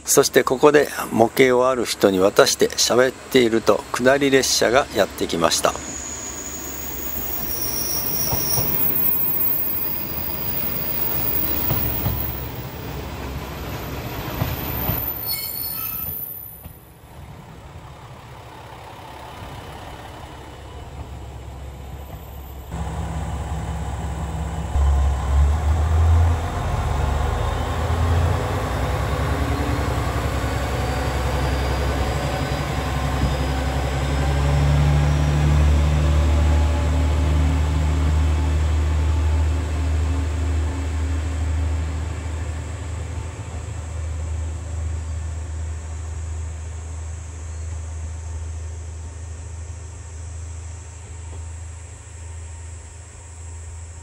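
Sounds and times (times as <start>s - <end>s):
diesel engine rumbling: 0.0s - 15.3s, 16.3s - 54.0s
train rolling noise: 0.0s - 54.0s
train wheel and brake squeal: 4.4s - 13.0s, 13.7s - 16.9s, 20.9s - 22.7s, 29.4s - 36.9s.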